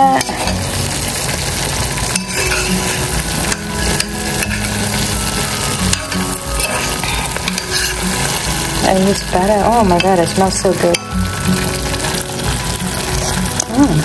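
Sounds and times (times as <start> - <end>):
nuts sizzling in a pan: 0.0 - 14.0
utensil scraping a pan: 2.0 - 5.1, 5.9 - 11.0.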